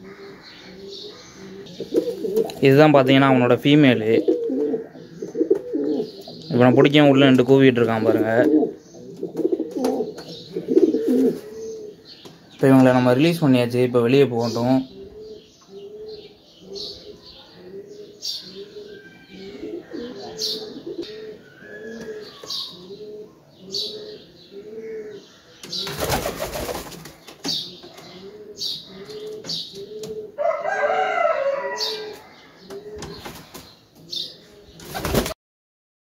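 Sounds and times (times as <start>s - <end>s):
pigeon cooing: 0.0s - 2.7s, 3.7s - 7.2s, 7.8s - 12.2s, 14.5s - 26.7s, 27.5s - 35.2s
wings flapping: 25.8s - 27.4s, 34.8s - 35.4s.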